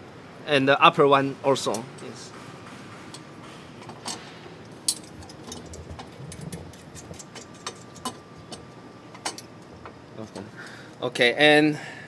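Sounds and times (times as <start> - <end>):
metal pipes clicking and tapping: 4.9 - 9.5.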